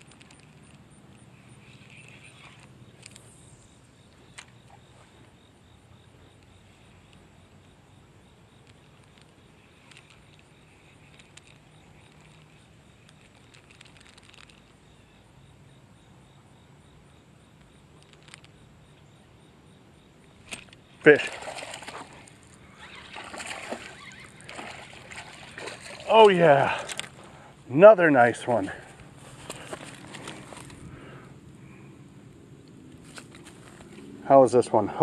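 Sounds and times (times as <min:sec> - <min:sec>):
insects chirping: 0:00.0 - 0:35.0
low steady hum: 0:00.0 - 0:35.0
faint clicks: 0:08.6 - 0:14.8.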